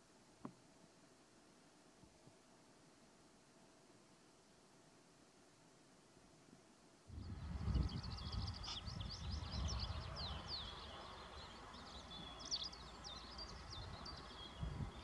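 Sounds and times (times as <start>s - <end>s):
birds chirping: 7.1s - 15.0s.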